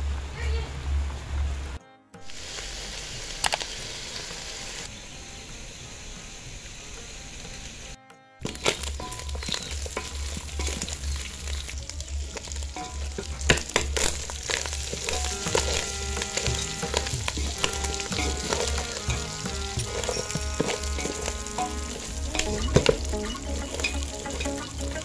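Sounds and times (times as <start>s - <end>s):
pork sizzling in a pot: 2.2s - 25.0s
wooden spatula scraping a pot: 8.4s - 25.0s.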